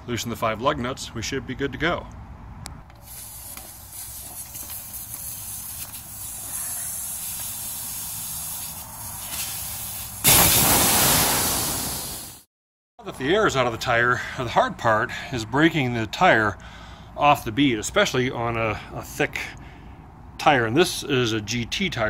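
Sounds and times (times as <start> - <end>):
air hissing out of tire: 3.0 - 12.5.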